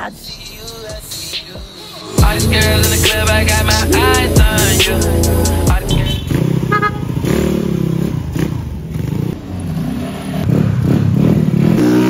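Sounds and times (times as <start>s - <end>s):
motor scooter engines revving: 2.2s - 12.0s.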